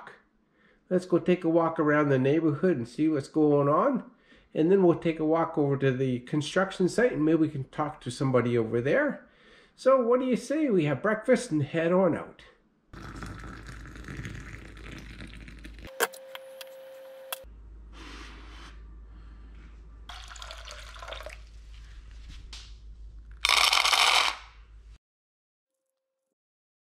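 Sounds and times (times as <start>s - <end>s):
water pouring into mug: 13.0s - 15.9s, 20.1s - 21.5s.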